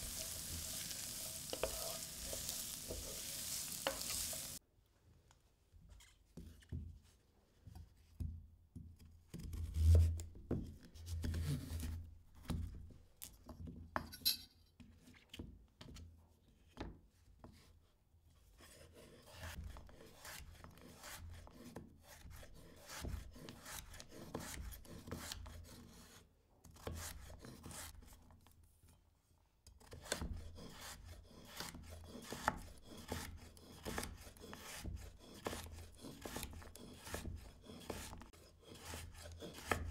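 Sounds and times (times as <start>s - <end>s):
food rasping and scraping: 0.0s - 4.6s, 30.0s - 39.9s.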